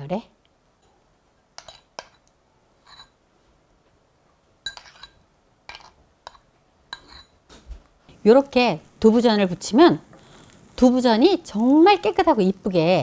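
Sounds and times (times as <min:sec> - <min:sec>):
spoon clinking on dishes: 0:04.6 - 0:07.4.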